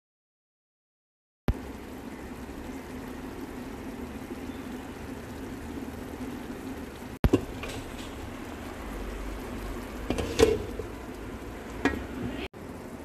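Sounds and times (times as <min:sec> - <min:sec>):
utensil clinking on metal pot: 0:10.1 - 0:10.9.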